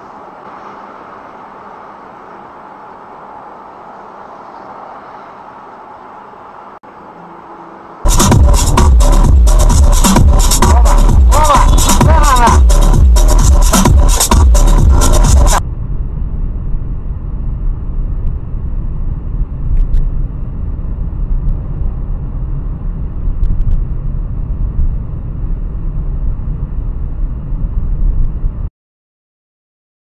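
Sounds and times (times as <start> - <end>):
car cabin road rumble: 8.0 - 28.7.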